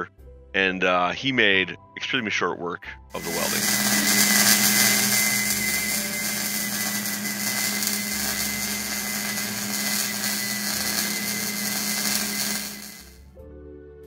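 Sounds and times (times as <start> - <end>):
welder arc hissing: 3.2 - 13.2.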